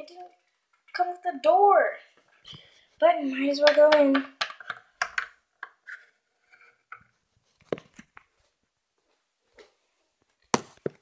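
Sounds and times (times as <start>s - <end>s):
plastic toy taps and knocks: 3.6s - 5.8s.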